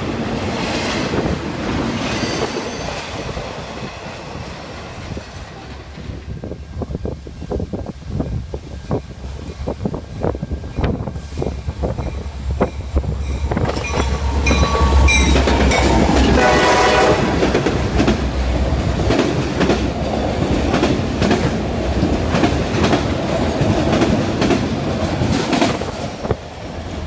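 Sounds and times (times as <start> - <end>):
train wheels clacking on rails: 8.8 - 27.0
crossing bell ringing: 11.9 - 16.5
train horn blast: 14.1 - 17.6.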